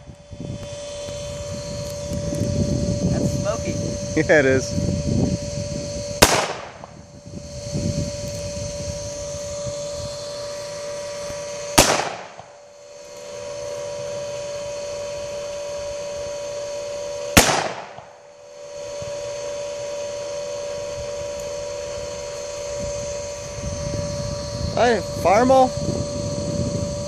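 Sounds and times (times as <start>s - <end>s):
pistol shots with echo: 6.2s - 6.8s, 11.8s - 12.4s, 17.4s - 18.0s.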